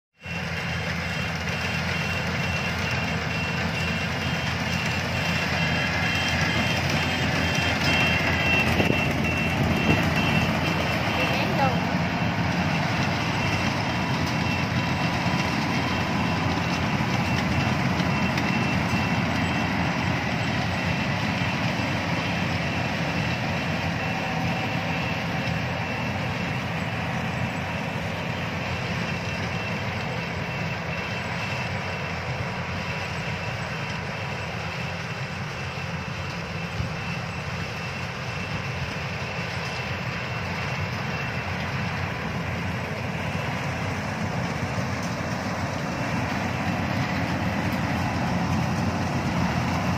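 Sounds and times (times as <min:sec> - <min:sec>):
combine harvester engine drone: 0:00.1 - 0:49.9.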